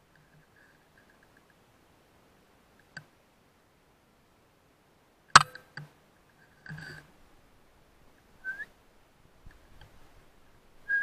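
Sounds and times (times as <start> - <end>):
rising whistle-like chirp: 8.4 - 8.7.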